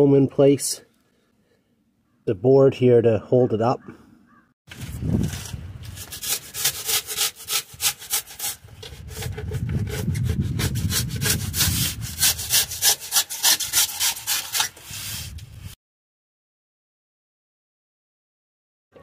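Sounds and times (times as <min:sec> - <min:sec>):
hand tool scraping metal panel: 0:05.2 - 0:15.4.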